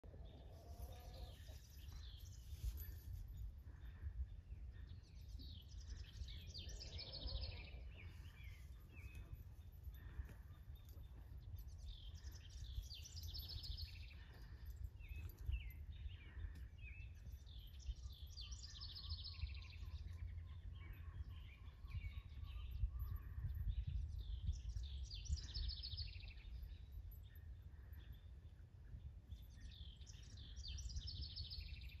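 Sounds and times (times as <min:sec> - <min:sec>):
songbird chirping: 0:00.0 - 0:32.0
low wind rumble: 0:19.6 - 0:31.0.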